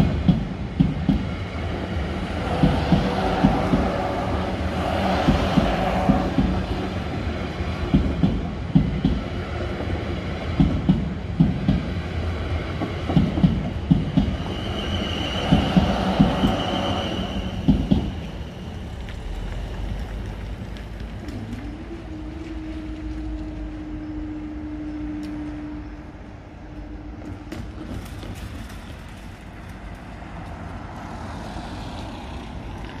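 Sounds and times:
train wheels clattering over rail joints: 5.0 - 6.8, 7.8 - 18.4, 27.5 - 30.6.

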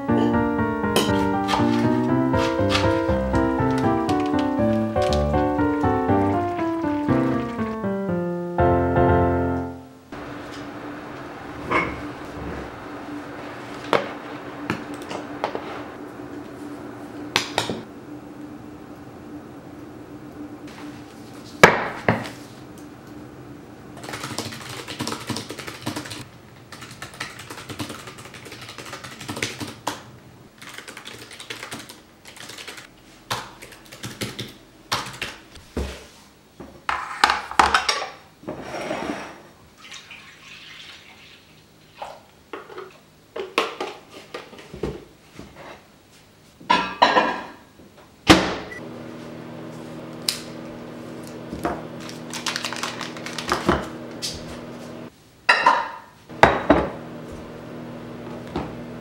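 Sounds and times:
steady low hum: 0.0 - 24.0, 48.7 - 55.1
dishes clattering on countertop: 46.7 - 47.6, 55.5 - 56.9.

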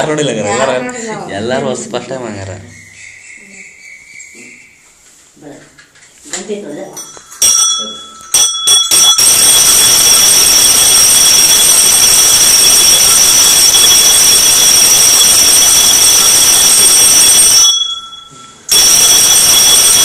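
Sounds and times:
hand bell ringing rapidly: 7.0 - 20.0.

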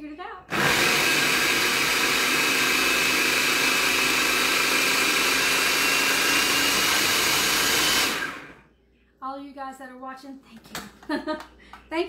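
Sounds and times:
food processor motor whining: 0.5 - 8.6.

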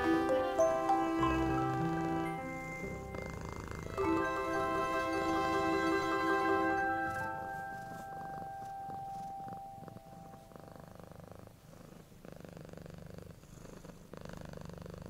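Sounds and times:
mallet percussion note: 0.0 - 8.2
cat purring: 0.7 - 15.0.

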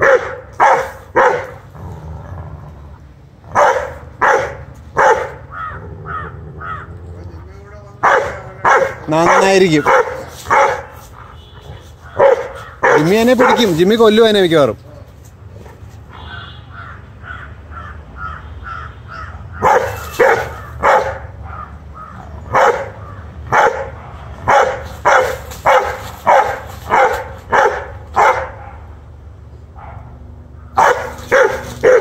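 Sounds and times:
dog barking angrily: 0.0 - 2.0, 3.4 - 6.9, 8.0 - 14.0, 19.1 - 29.0, 29.8 - 32.0.

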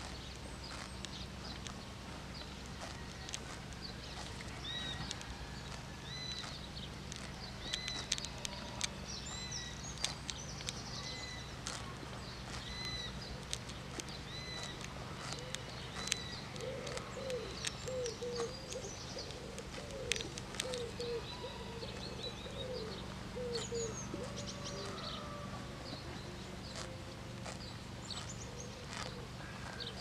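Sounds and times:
horse tearing grass: 0.0 - 22.2, 23.2 - 30.0
small birds chirping: 0.0 - 30.0
pigeon cooing: 12.5 - 27.6.

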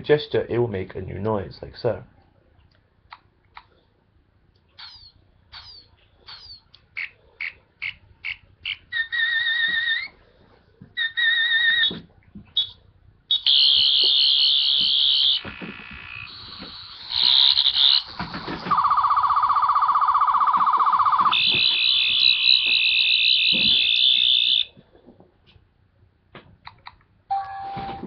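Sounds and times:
electronic warbling tones: 18.7 - 24.7.

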